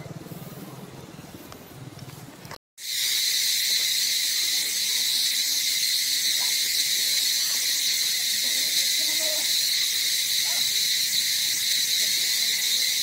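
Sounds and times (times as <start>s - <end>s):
high-pitched insect chorus: 2.8s - 13.0s.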